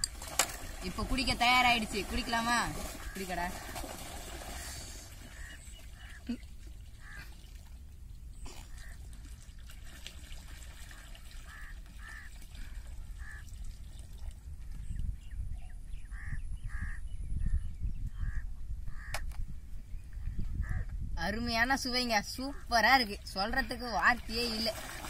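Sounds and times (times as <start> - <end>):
water gushing into pool: 0.0 - 5.5, 8.8 - 14.4, 24.2 - 25.0
crows cawing: 13.2 - 13.5, 18.2 - 19.2.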